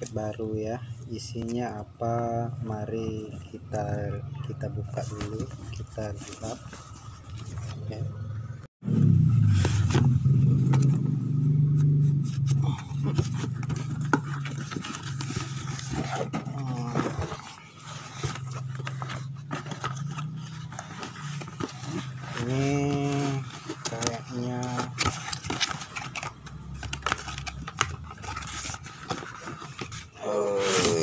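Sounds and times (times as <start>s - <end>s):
cardboard box scraping and rustling: 5.0s - 7.9s, 9.4s - 11.1s, 11.8s - 31.0s.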